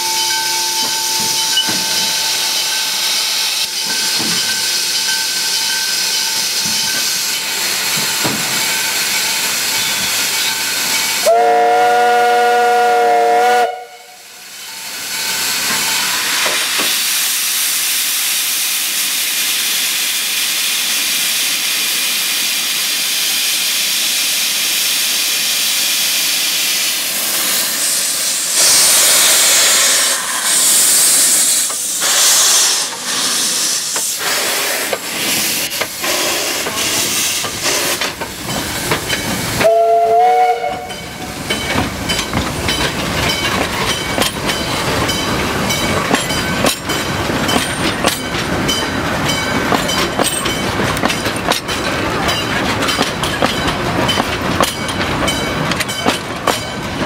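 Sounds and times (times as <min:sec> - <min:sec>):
steady steam hiss: 0:00.9 - 0:12.0, 0:12.9 - 0:57.0
steam whistle chord: 0:11.2 - 0:14.2, 0:39.6 - 0:41.1
loud steam blast: 0:21.5 - 0:38.0.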